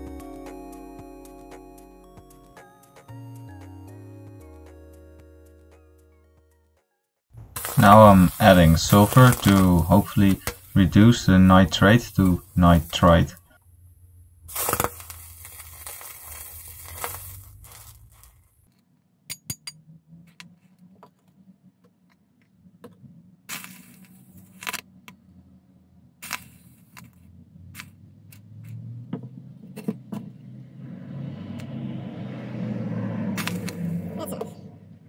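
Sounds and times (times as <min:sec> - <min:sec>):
sharp clicks and pops: 0:07.4 - 0:10.8, 0:14.5 - 0:16.2
hiss: 0:07.6 - 0:10.9.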